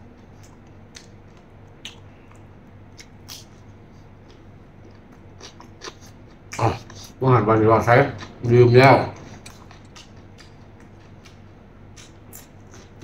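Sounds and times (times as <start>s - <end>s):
faint low hum: 0.0s - 13.0s
wet chewing mouth clicks: 0.3s - 3.6s, 4.2s - 7.2s, 9.2s - 13.0s.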